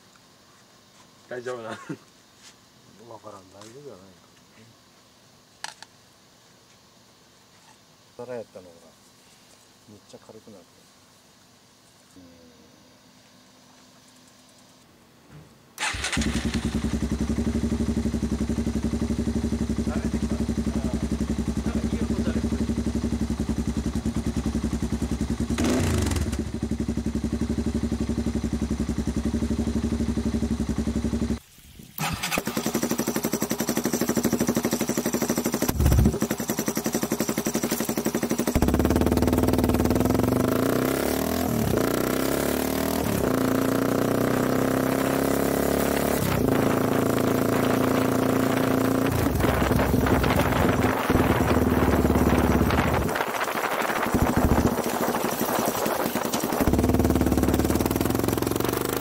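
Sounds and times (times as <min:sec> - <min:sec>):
motorcycle engine idling and revving: 0:15.8 - 0:31.4, 0:32.0 - 0:59.0.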